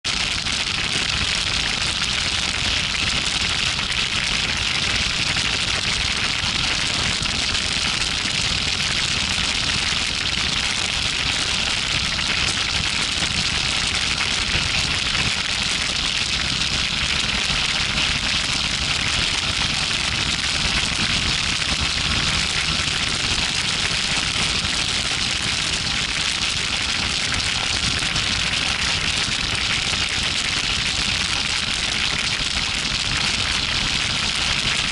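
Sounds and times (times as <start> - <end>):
wind and road noise: 11.7 - 28.9.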